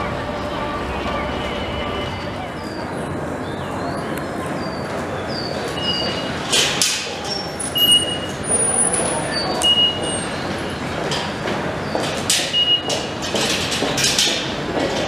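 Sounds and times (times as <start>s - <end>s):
station background din: 0.0s - 13.3s.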